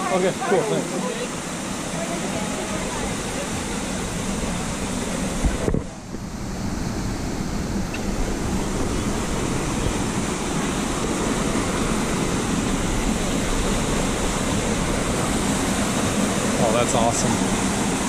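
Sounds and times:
stream cascading over rocks: 0:00.0 - 0:18.0.

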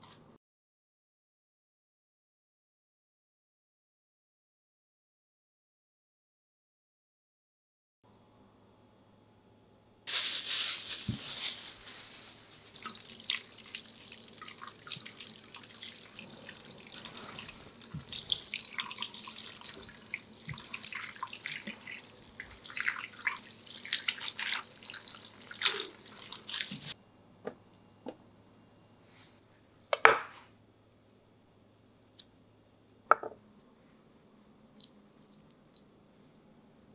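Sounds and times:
tap water running into bowl: 0:12.8 - 0:27.0.

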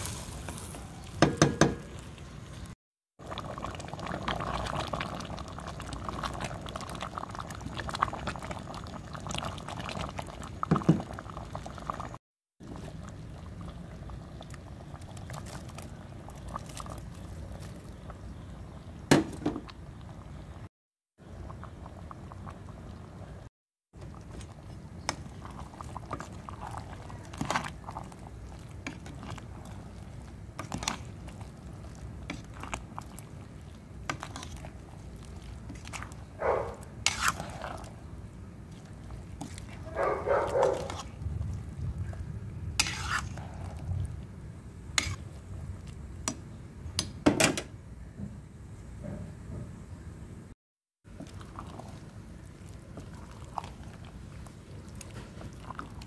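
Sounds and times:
stew simmering: 0:00.0 - 0:47.2, 0:51.0 - 0:56.0
utensil scraping pan: 0:37.0 - 0:37.6, 0:42.8 - 0:43.4.

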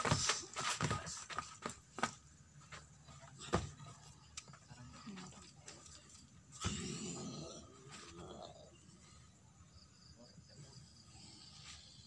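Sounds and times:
footsteps on packed dirt: 0:00.0 - 0:03.8
knocks and scuffs of grappling: 0:00.0 - 0:04.6.

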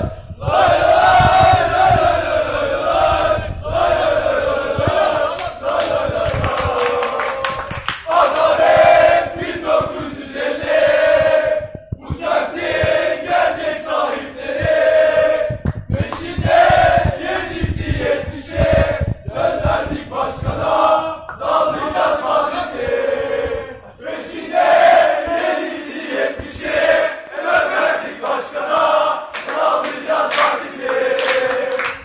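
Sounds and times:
men chanting in unison: 0:00.0 - 0:32.0
people clapping along: 0:04.8 - 0:11.3, 0:12.0 - 0:22.1, 0:27.2 - 0:32.0.

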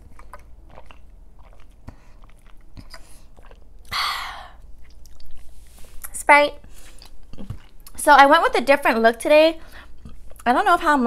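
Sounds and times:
chewing clicks: 0:00.0 - 0:03.6.

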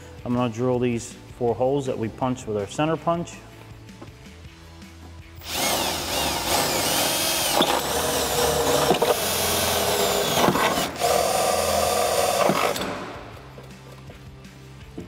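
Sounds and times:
cordless drill drilling metal: 0:05.4 - 0:13.0.

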